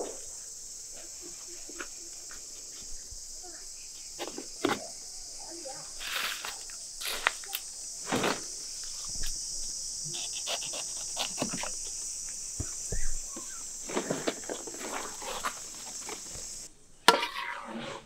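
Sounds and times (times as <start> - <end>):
insects chirring: 0.0 - 18.0
large leaves rustling: 5.2 - 16.7
footsteps on dry leaves: 6.0 - 7.4.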